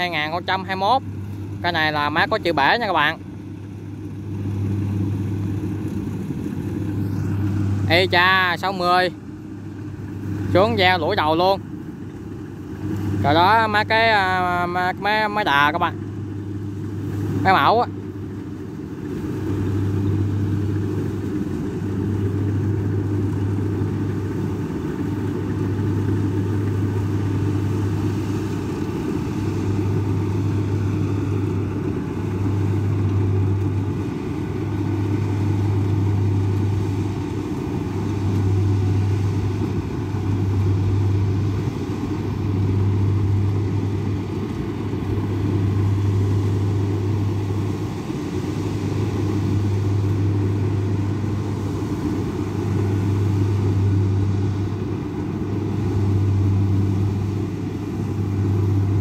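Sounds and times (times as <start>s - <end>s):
combine harvester engine hum: 0.0s - 59.0s.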